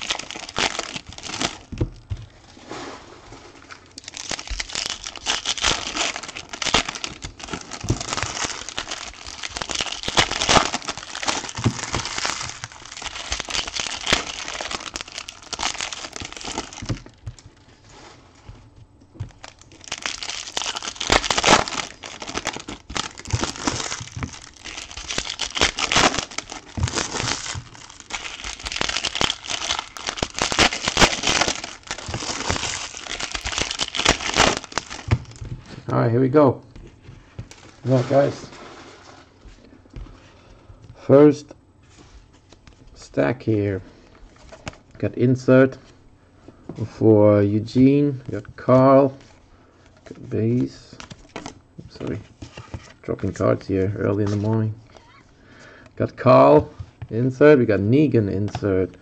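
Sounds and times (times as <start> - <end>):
foil wrappers crinkling and tearing: 0.0 - 1.9, 3.6 - 18.5, 19.2 - 35.8, 48.5 - 55.8.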